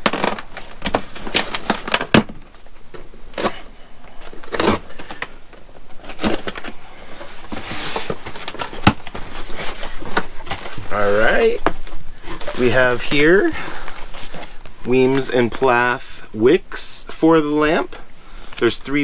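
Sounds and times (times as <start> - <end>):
packing tape torn: 0.0 - 6.8
cardboard scraping: 3.3 - 5.2, 5.9 - 14.6.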